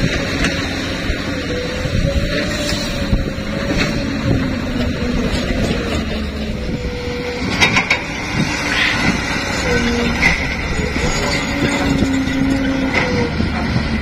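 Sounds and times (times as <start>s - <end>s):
truck diesel engine running: 0.0s - 14.0s.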